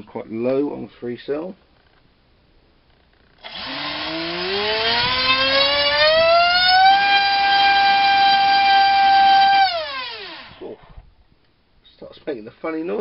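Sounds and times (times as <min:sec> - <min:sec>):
brushless motor whine: 0:03.4 - 0:10.8.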